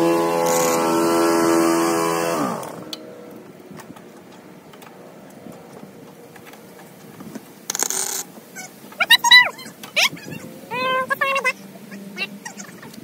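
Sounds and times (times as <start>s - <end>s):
humming motor winding down: 0.0s - 4.0s.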